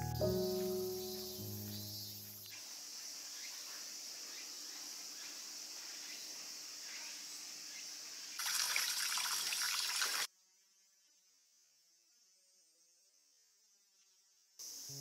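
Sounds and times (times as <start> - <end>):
insects chirping: 0.0 - 15.0
running splashing water: 8.4 - 10.3.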